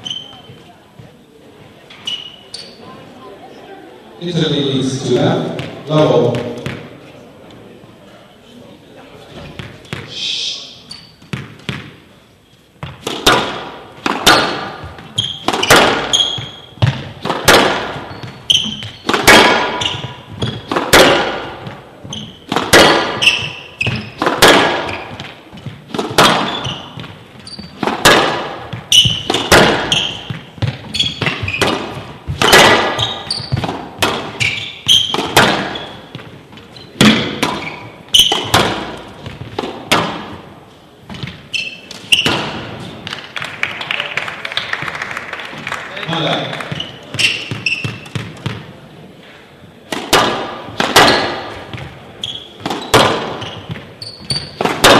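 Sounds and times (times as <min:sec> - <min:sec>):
squash ball echoing knocks: 0:05.1 - 0:07.0, 0:11.2 - 0:12.0, 0:12.8 - 0:43.4, 0:46.6 - 0:48.8, 0:49.8 - 0:54.9.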